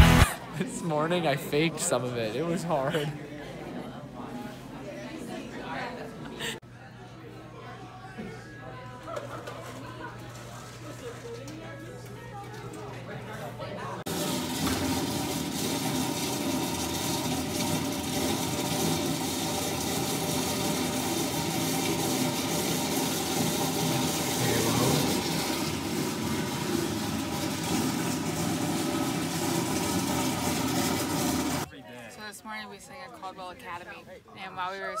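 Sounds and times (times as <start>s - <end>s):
toilet flushing: 14.0s - 31.7s.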